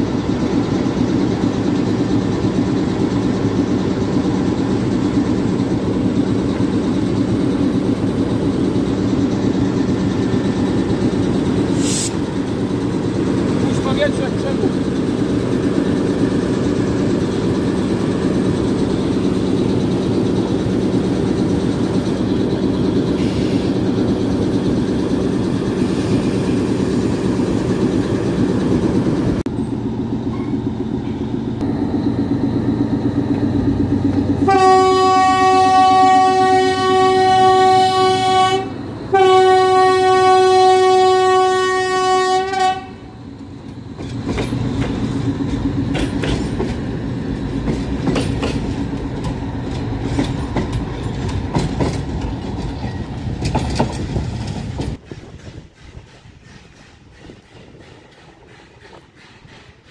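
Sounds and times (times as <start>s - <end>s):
train wheels clicking over rail joints: 0.0s - 39.2s, 42.6s - 59.9s
diesel locomotive engine running: 0.0s - 59.9s
locomotive horn blasts: 34.4s - 43.2s.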